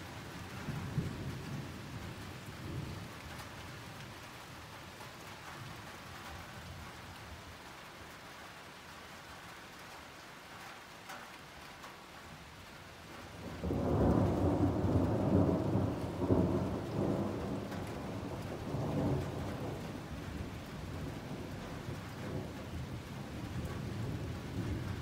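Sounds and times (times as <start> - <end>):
steady rain falling: 0.0 - 25.0
thunder rumbling: 13.4 - 25.0.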